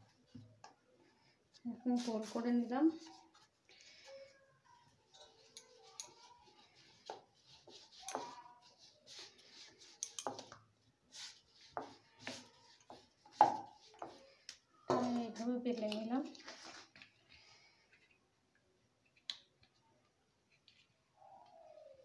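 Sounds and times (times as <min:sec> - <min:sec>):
rolling pin rolling dough: 0:04.8 - 0:15.7.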